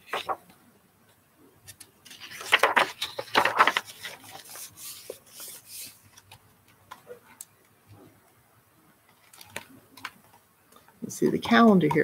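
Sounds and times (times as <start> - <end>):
book pages turning: 0.0 - 0.5, 1.6 - 6.4.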